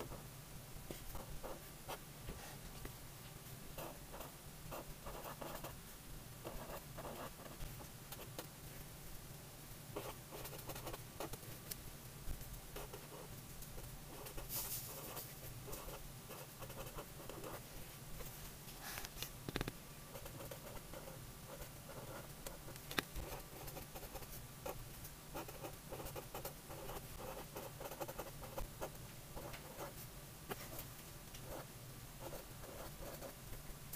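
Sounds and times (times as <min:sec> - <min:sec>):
marker scratching on paper: 0:03.8 - 0:05.7, 0:06.4 - 0:07.6, 0:10.0 - 0:11.4, 0:14.1 - 0:17.6, 0:25.4 - 0:29.9, 0:31.5 - 0:33.4.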